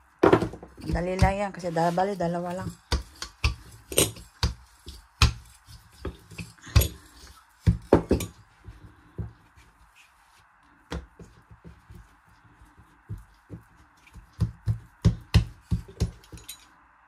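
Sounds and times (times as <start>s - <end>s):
hands patting dough: 0.2s - 16.4s
rolling pin knocking on dough: 2.4s - 7.0s, 7.6s - 9.4s, 13.0s - 16.4s.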